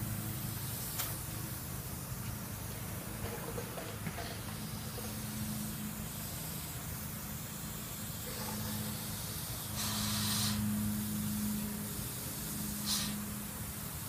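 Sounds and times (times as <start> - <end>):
airbrush spraying hiss: 0.0 - 14.0
steady low hum: 0.0 - 14.0
airbrush puff: 8.2 - 10.7, 12.8 - 13.3.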